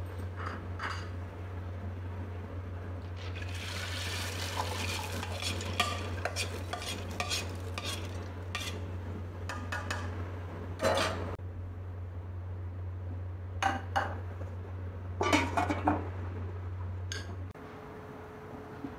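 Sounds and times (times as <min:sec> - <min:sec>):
lentils poured into liquid: 0:03.2 - 0:05.8
spatula scraping metal pot: 0:04.6 - 0:09.0.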